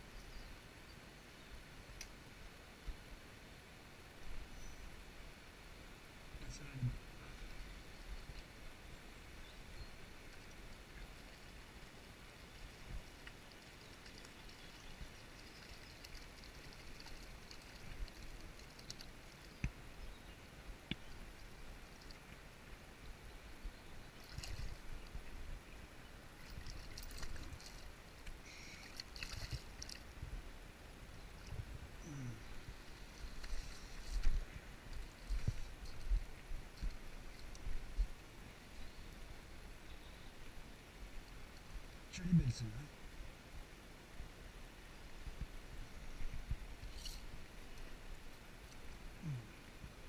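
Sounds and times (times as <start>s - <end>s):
stream running over rocks: 0.0s - 50.0s
splashes in water: 28.7s - 30.1s.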